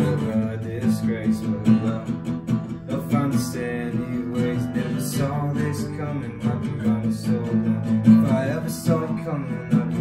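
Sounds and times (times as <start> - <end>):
acoustic guitar strumming: 0.0 - 10.0.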